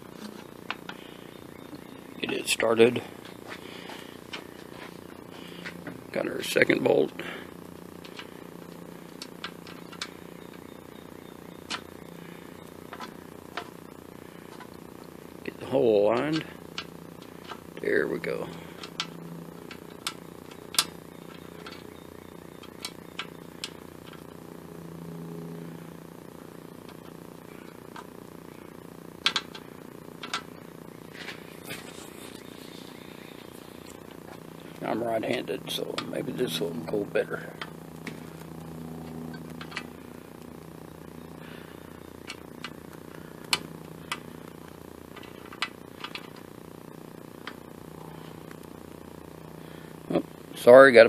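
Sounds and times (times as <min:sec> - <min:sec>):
steady low hum: 0:00.0 - 0:51.0
sharp metallic clicks: 0:16.1 - 0:24.3, 0:29.2 - 0:30.6.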